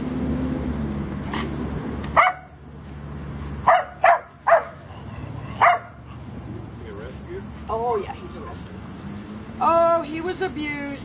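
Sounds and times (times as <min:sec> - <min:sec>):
dog barking: 0:02.2 - 0:02.6, 0:03.6 - 0:06.0.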